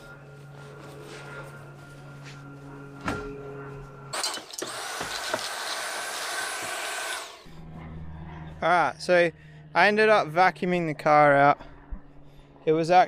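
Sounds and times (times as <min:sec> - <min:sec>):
vacuum cleaner motor whine: 0:00.0 - 0:07.7.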